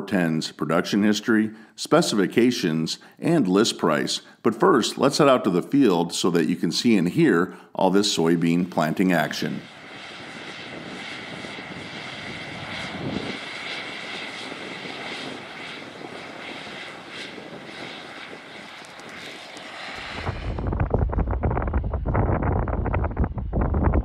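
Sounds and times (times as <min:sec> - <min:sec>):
distant tractor engine drone: 0:09.6 - 0:21.1
wind rumble on microphone: 0:09.7 - 0:24.0.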